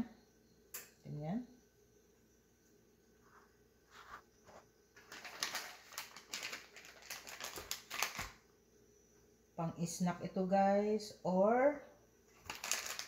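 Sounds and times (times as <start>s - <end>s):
plastic packaging crinkling: 5.0s - 8.4s, 12.3s - 13.0s.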